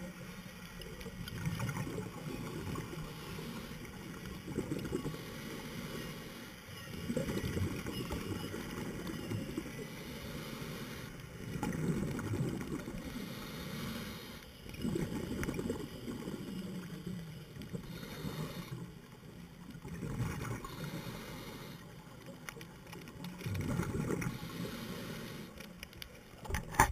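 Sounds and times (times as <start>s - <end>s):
exhaled bubbles underwater: 1.0s - 5.3s, 6.9s - 9.8s, 11.4s - 13.1s, 14.7s - 21.0s, 23.3s - 24.5s
diver breathing through regulator: 2.8s - 6.7s, 9.8s - 11.7s, 12.7s - 17.0s, 17.8s - 19.0s, 20.5s - 22.0s, 24.1s - 25.8s.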